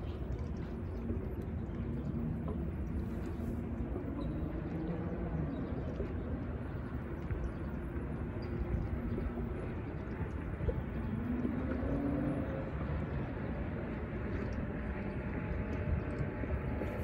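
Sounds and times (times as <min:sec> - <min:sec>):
distant engine hum: 0:00.0 - 0:17.0
wind noise on microphone: 0:00.0 - 0:17.0.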